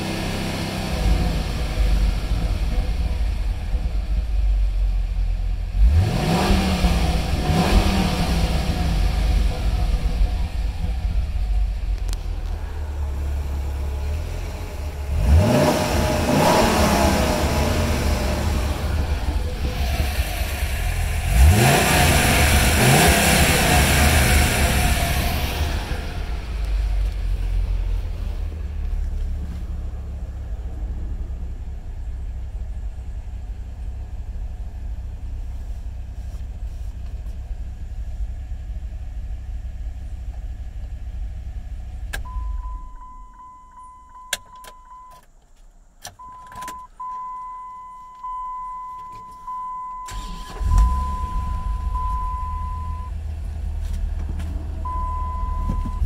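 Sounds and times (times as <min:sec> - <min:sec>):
engine idling: 0:00.0 - 0:56.0
ignition switch click: 0:43.3 - 0:45.3, 0:46.0 - 0:48.4
engine starting: 0:50.0 - 0:52.3.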